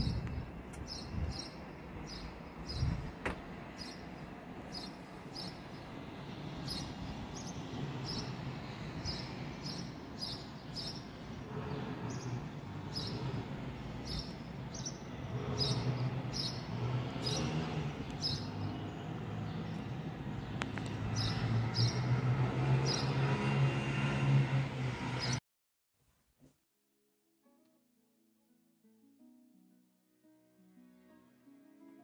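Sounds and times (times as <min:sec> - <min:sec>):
distant traffic rumble: 0:00.0 - 0:25.4.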